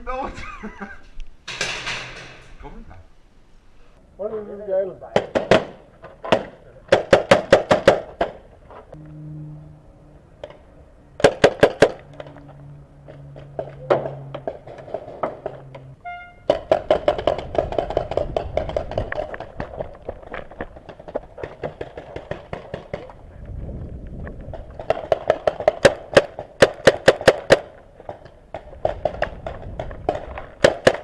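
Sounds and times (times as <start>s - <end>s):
paintball markers firing: 24.5s - 31.0s.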